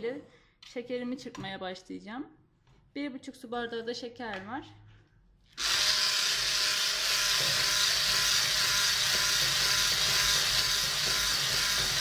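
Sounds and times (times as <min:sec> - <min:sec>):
electric hand mixer whisking: 0:05.6 - 0:12.0.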